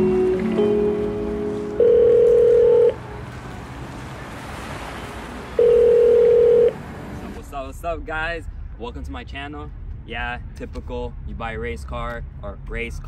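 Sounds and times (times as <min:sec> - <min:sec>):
music track: 0:00.0 - 0:04.2.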